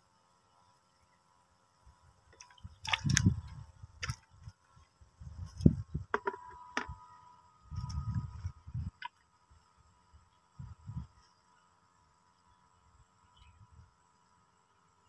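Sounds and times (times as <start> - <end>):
plastic bucket lid clicks and knocks: 6.1 - 7.0.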